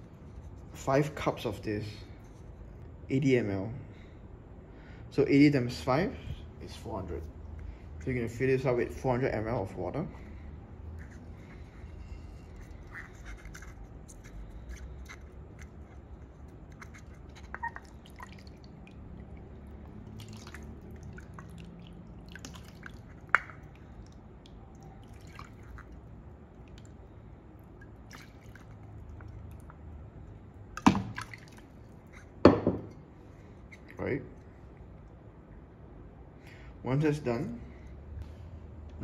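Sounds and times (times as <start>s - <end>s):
water dripping: 16.8s - 27.0s, 27.7s - 29.9s, 30.8s - 31.8s
water pouring: 17.3s - 24.1s, 24.8s - 26.0s, 27.9s - 29.5s, 30.8s - 31.8s
cup tapping: 32.4s - 33.0s.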